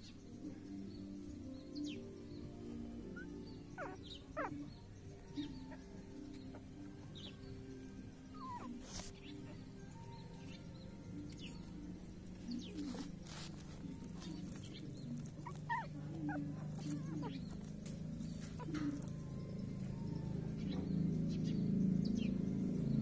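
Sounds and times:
puppies whimpering: 1.6s - 22.3s.

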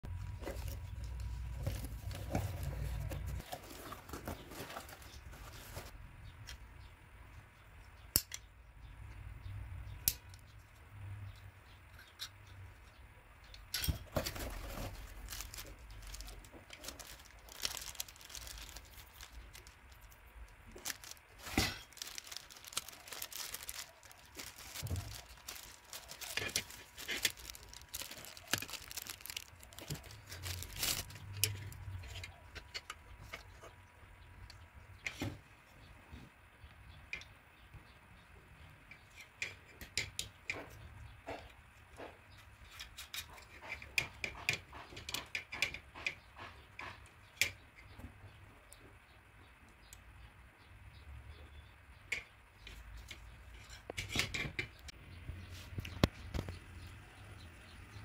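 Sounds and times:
plastic bag crinkling and tearing: 14.2s - 31.2s.

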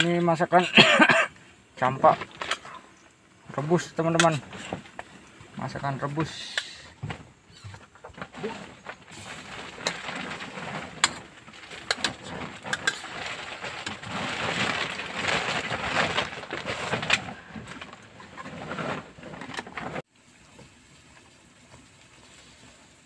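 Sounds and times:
steady hiss: 0.0s - 7.8s, 20.1s - 23.0s.

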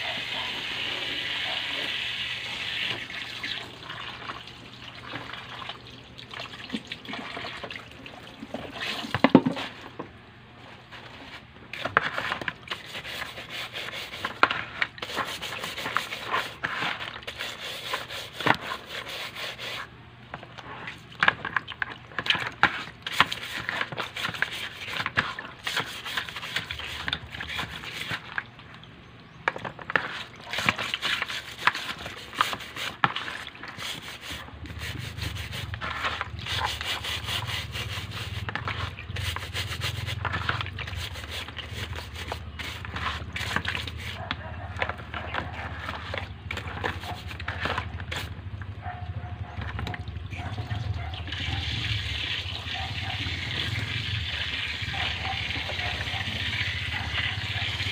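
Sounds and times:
scrub brush scrubbing shell: 10.9s - 19.9s, 22.2s - 28.4s, 29.7s - 48.4s.

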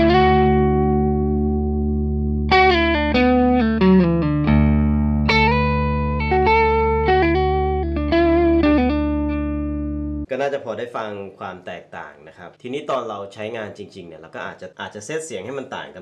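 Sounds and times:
overdriven electric guitar: 0.0s - 10.3s.

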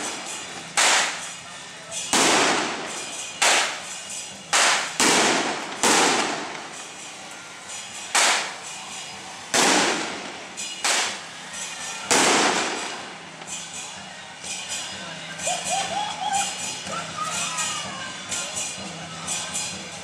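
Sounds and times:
firecrackers banging: 0.0s - 15.0s.

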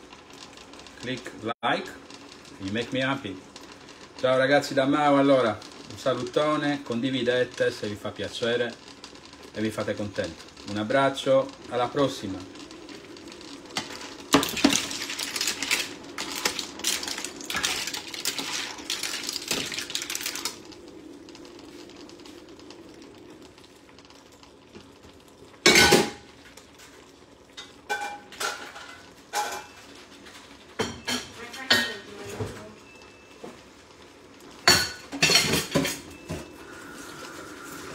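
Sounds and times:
kitchenware clinking: 27.6s - 29.9s, 30.8s - 32.4s, 34.6s - 36.5s.

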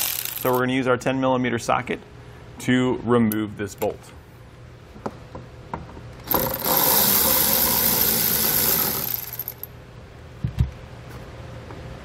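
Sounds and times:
cordless ratchet motor whirring: 6.2s - 9.7s.

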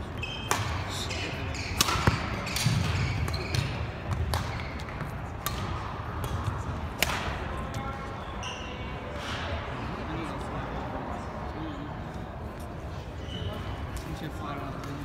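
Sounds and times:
shoes squeaking: 0.0s - 5.4s, 12.6s - 15.0s
racket hitting shuttlecock: 0.3s - 0.9s, 1.5s - 7.8s.

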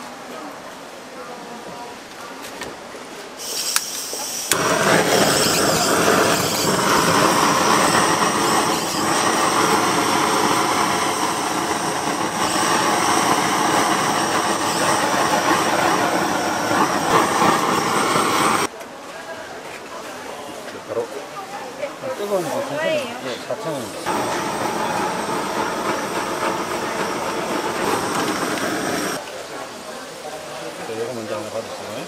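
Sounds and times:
blowtorch flame hissing: 3.4s - 18.7s, 22.2s - 29.2s.

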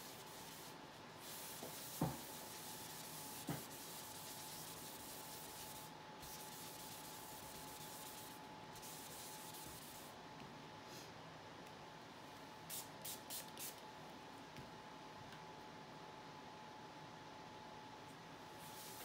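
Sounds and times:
tissue rubbing on paper: 0.0s - 10.1s, 18.6s - 19.0s.

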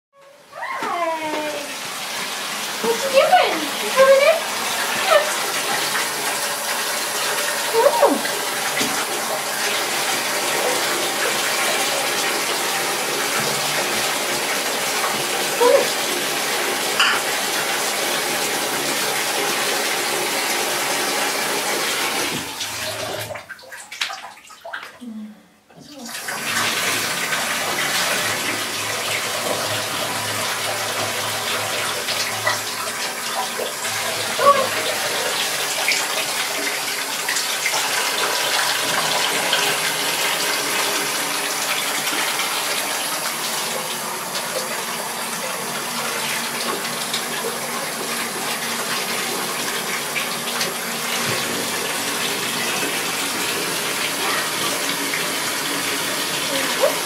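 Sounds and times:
bathtub tap running: 0.2s - 25.0s, 25.7s - 57.0s.

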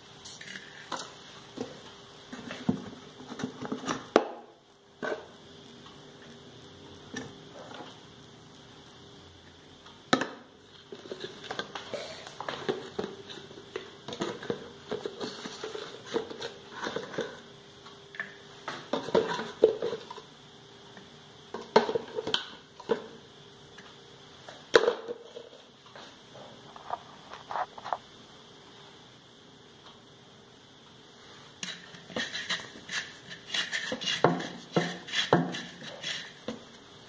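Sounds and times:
faint steady hum: 0.0s - 37.0s
spoon scraping and tapping jars: 31.6s - 36.6s.

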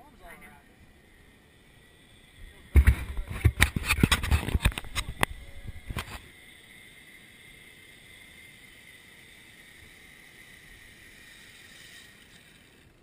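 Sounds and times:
zip-line pulleys whining on cable: 0.0s - 13.0s.

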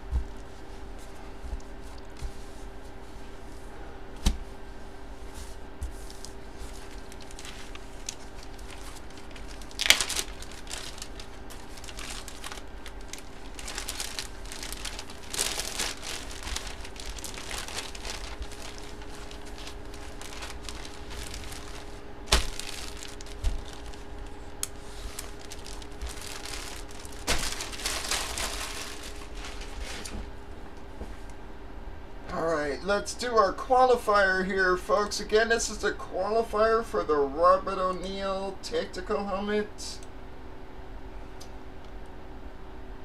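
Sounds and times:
faint steady hum: 0.0s - 43.0s
plastic packaging crinkling: 6.0s - 30.4s.

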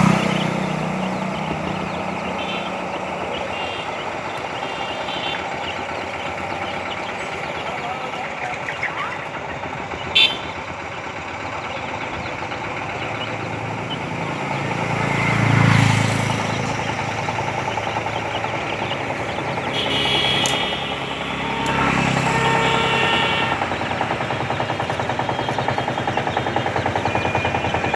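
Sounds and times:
motor vehicle engine passing: 0.0s - 27.9s.

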